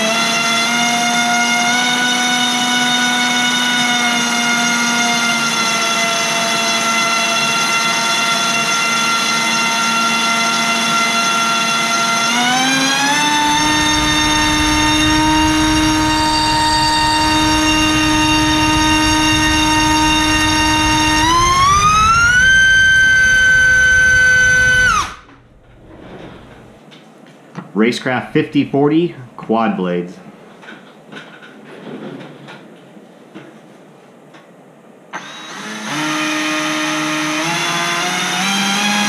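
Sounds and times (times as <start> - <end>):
electric motor propeller whine: 6.2 - 26.7, 35.2 - 39.0.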